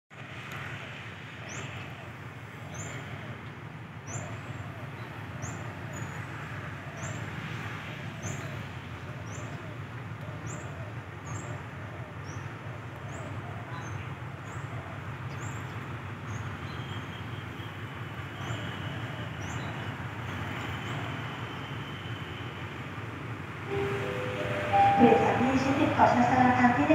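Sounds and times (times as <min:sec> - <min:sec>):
locomotive diesel rumble: 0:22.5 - 0:26.9
bird chirping: 0:23.7 - 0:26.1.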